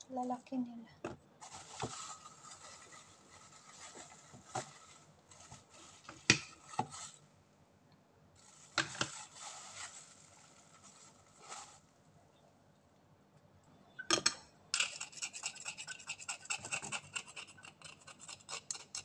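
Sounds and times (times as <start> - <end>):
plastic bag rustling: 1.4 - 7.3, 8.4 - 11.9.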